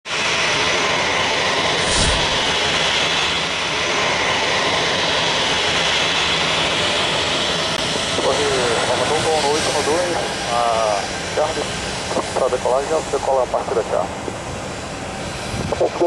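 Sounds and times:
jet engines roaring: 0.1 - 16.0.

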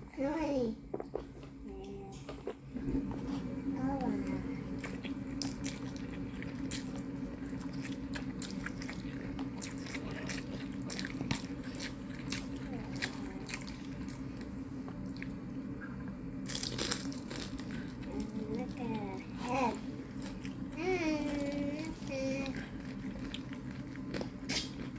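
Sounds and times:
steady low hum: 0.0 - 24.9
chewing with wet mouth clicks: 4.8 - 15.4.

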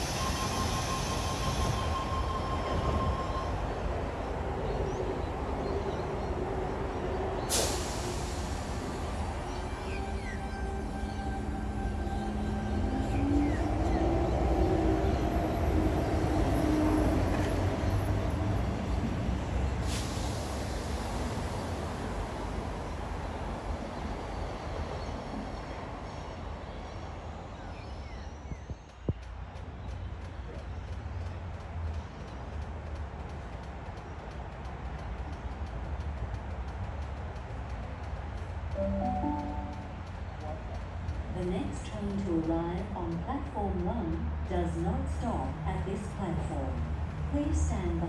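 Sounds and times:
electric train departing: 0.0 - 28.2, 33.0 - 48.0
burst of hiss: 7.5 - 9.2
train equipment rumbling: 29.2 - 48.0
steady high tone: 38.8 - 40.1.

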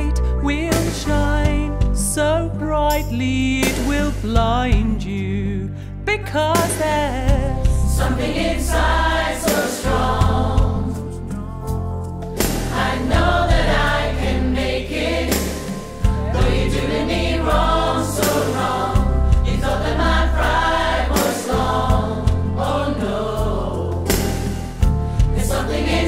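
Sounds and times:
bass line: 0.0 - 26.0
steady drum beat: 6.7 - 11.0, 12.4 - 26.0
choir singing: 7.9 - 11.1, 12.4 - 26.0.

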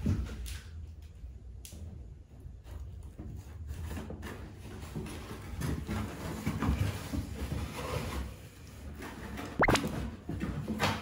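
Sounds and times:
scraping and rustling on cardboard: 2.6 - 9.6.

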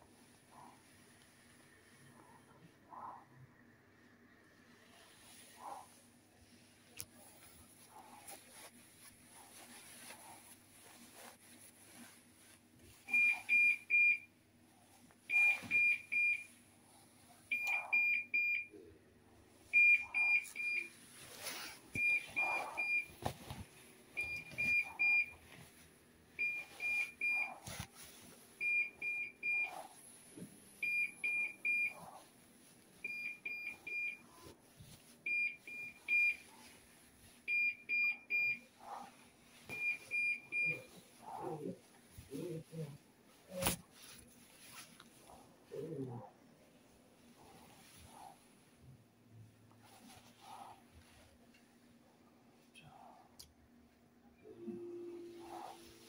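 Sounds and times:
medical alarm beeping: 13.1 - 14.3, 15.3 - 16.5, 17.5 - 18.7, 19.8 - 20.9, 22.0 - 23.1, 24.2 - 25.4, 26.4 - 27.6, 28.6 - 29.9, 30.8 - 32.1, 33.0 - 34.2, 35.3 - 36.4, 37.5 - 38.7, 39.7 - 40.9.

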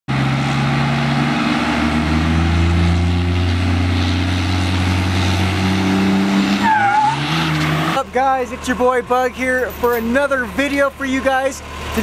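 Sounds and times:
diesel truck engines revving: 0.1 - 12.0.

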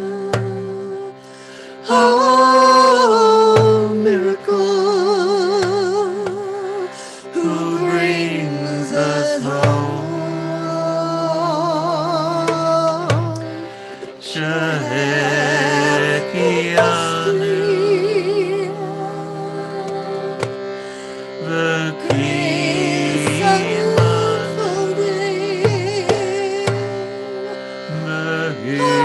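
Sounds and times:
steady held drone: 0.0 - 29.0
woman singing a chant: 1.8 - 29.0
drum strikes: 16.7 - 17.2.

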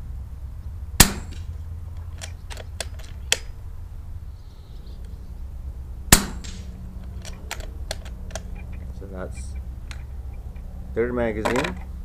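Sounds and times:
air rifle shot: 1.0 - 1.5, 6.1 - 6.7
rifle action clicks: 2.0 - 3.5, 6.4 - 8.8.

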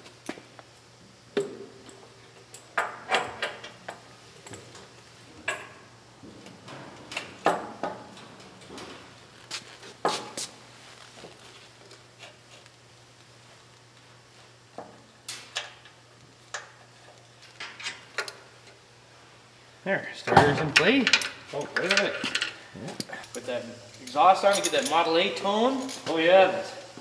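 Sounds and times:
metal clanks and clinks: 24.0 - 25.1.

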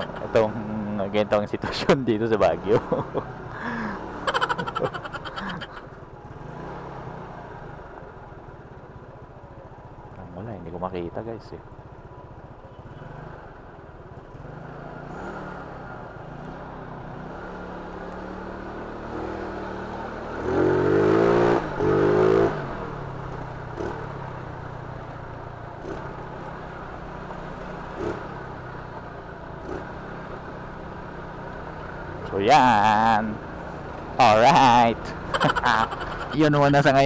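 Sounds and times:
scooter engine running: 0.0 - 0.8, 32.7 - 36.8.

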